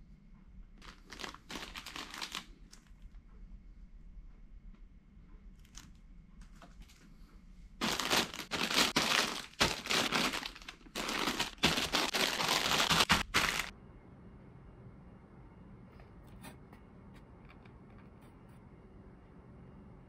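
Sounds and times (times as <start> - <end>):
plastic bags crinkling: 0.8 - 2.9, 7.8 - 13.7.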